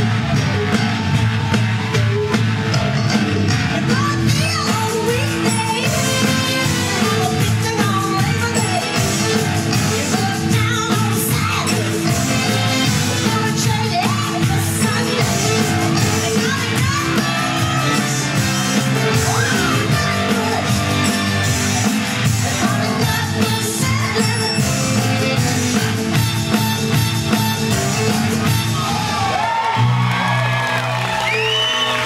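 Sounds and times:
upbeat soul song with vocals: 3.8 - 26.3.

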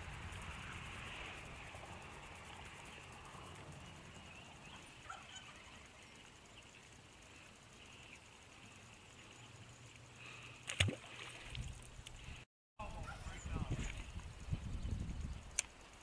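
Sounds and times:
faint bird chirps: 3.8 - 10.6
fish splashing into water: 10.6 - 11.7.

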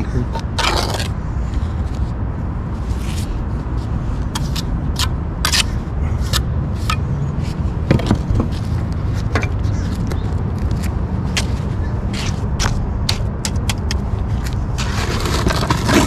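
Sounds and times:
low rumble of road traffic: 0.0 - 16.0
trowel scraping wet concrete: 0.1 - 1.2, 4.4 - 7.0, 14.8 - 16.0.

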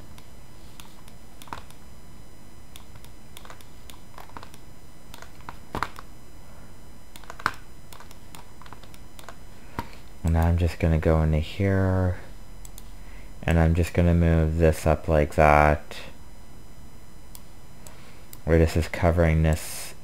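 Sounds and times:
mouse and keyboard clicks: 0.7 - 1.8, 2.8 - 6.0, 7.2 - 9.4.

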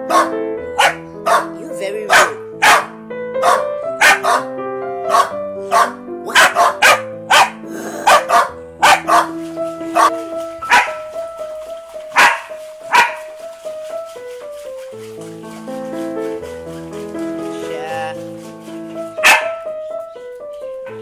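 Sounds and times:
dog barking: 0.0 - 4.5, 5.1 - 11.1, 12.1 - 13.3, 19.2 - 19.7
background music held notes: 0.0 - 21.0.

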